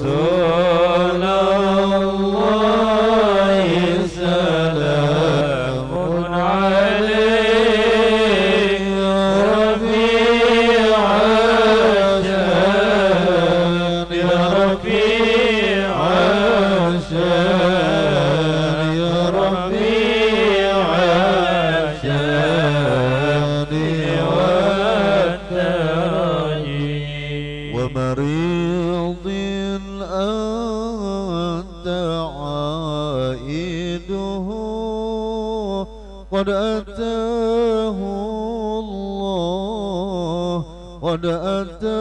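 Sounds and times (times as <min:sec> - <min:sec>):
men chanting: 0:00.0 - 0:29.2
man singing into a microphone: 0:00.0 - 0:42.0.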